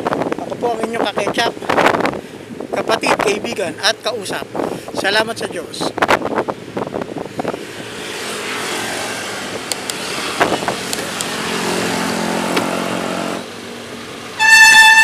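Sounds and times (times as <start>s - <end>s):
engine hum: 0.0s - 15.0s
passing motorcycles and cars: 0.0s - 15.0s
loud steady horn: 12.8s - 13.5s, 14.4s - 15.0s.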